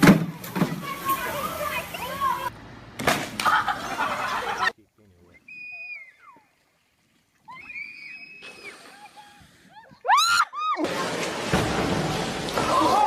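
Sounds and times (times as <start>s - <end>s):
heavy splash into pool: 10.8s - 13.0s.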